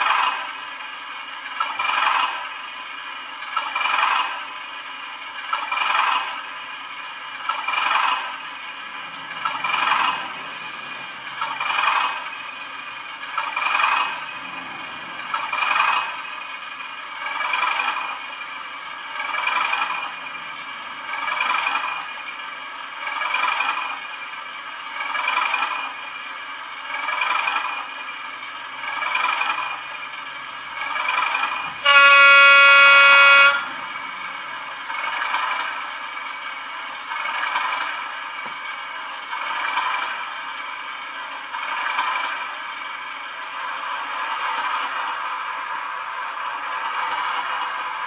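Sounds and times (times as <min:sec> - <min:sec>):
model locomotive diesel engine sound: 0:00.0 - 0:48.0
locomotive horn blast: 0:31.8 - 0:33.8.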